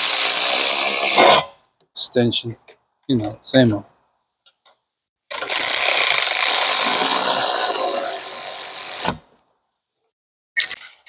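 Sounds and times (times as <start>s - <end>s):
electric ratchet spinning: 0.0s - 1.2s, 5.3s - 9.2s.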